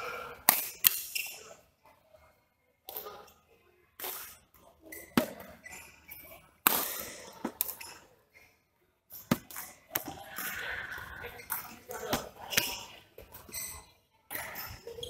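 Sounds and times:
faint voices: 0:10.0 - 0:13.5.

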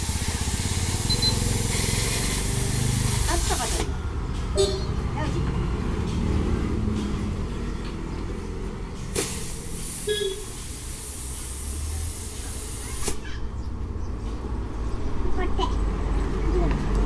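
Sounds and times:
compressed air hissing from hose: 0:00.0 - 0:03.9, 0:09.0 - 0:13.3.

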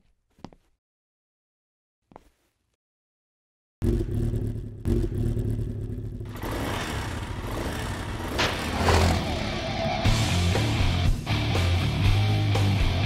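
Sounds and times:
motorcycle engine revving: 0:03.8 - 0:11.0.

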